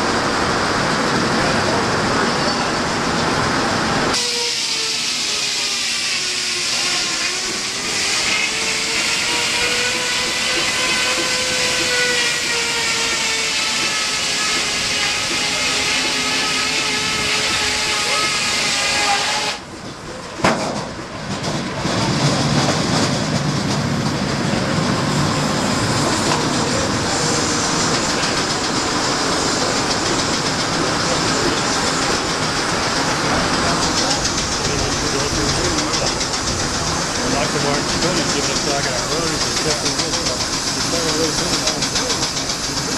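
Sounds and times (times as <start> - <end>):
steam hiss: 4.1 - 19.6, 25.5 - 42.9.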